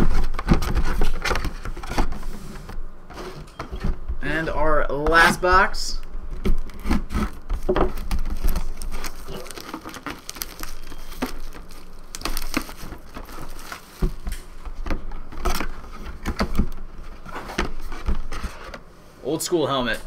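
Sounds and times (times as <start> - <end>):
plastic wrap tearing and crinkling: 6.6 - 14.6.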